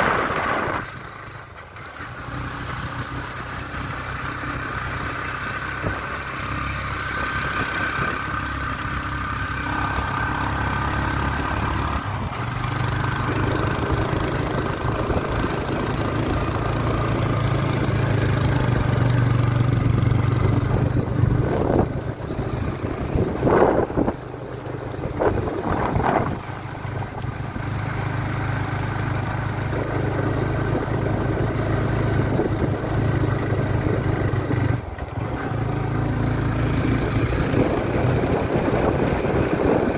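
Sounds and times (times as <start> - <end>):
vehicle engine running: 0.0 - 39.9.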